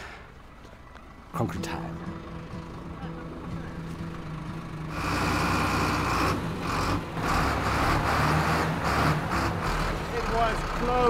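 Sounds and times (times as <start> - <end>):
diesel truck engine running: 0.0 - 11.0.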